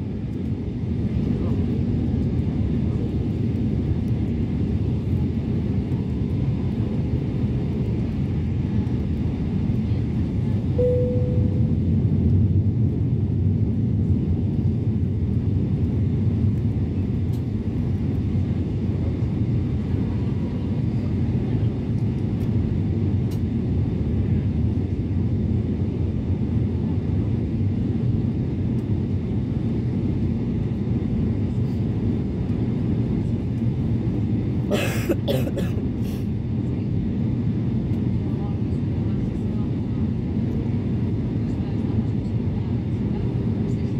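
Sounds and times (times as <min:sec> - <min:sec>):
airliner cabin rumble: 0:00.0 - 0:43.9
short tone: 0:10.8 - 0:11.8.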